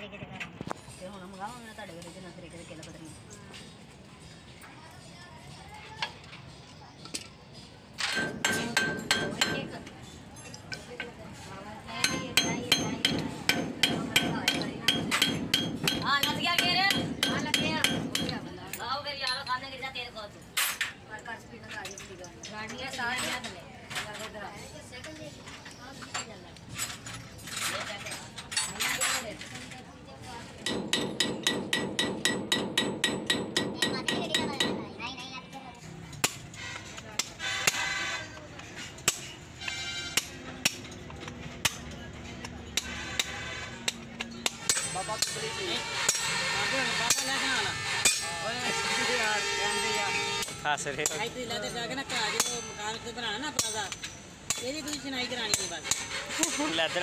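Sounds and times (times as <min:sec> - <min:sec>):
hammer striking metal rivets: 0:08.0 - 0:09.7, 0:12.0 - 0:18.8, 0:30.6 - 0:34.9, 0:42.7 - 0:46.5, 0:47.1 - 0:48.4.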